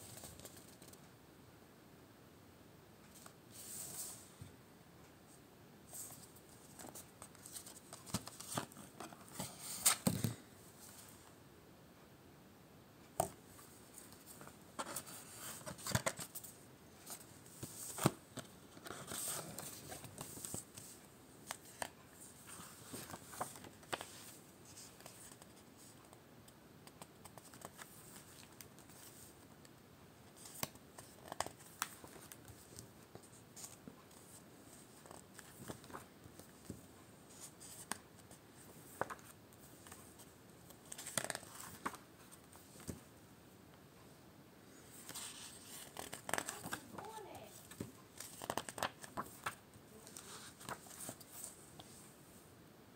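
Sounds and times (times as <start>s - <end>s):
paper rustling and clicking: 38.9s - 40.1s, 45.0s - 51.5s.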